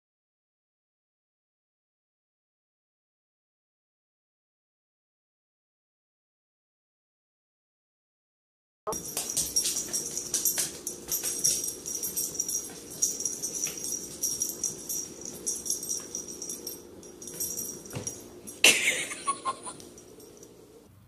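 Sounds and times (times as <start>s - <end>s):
pet jingling and clicking on tiles: 8.9s - 20.8s.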